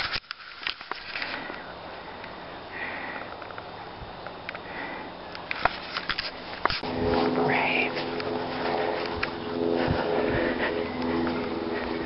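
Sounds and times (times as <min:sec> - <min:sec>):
man breathing heavily: 0:01.1 - 0:03.6, 0:04.5 - 0:05.4, 0:06.8 - 0:12.0.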